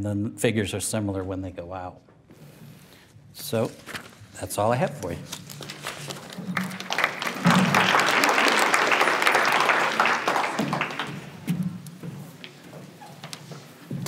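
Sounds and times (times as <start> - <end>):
audience applauding: 5.6 - 11.5.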